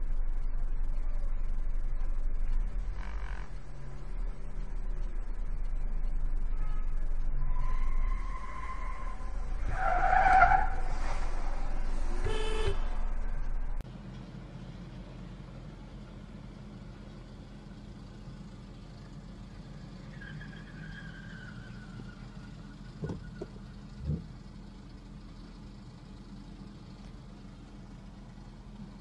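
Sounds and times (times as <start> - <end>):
car interior hum: 0.0 - 29.0
car traffic: 0.0 - 29.0
high-pitched squeal: 5.9 - 13.8.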